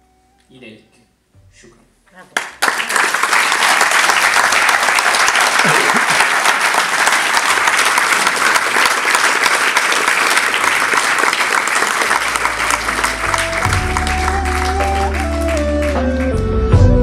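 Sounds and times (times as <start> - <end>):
music with held notes: 0.0 - 2.0, 12.2 - 17.0
audience applauding: 2.3 - 16.4.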